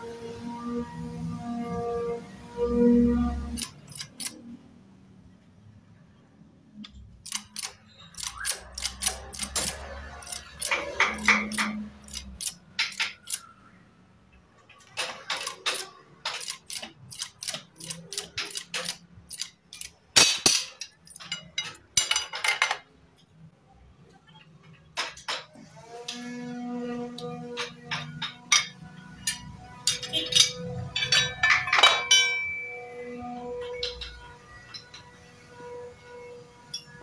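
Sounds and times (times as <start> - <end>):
metal tools clinking: 3.5 - 4.4, 7.2 - 13.5, 14.7 - 22.8, 27.2 - 35.3, 36.7 - 37.0.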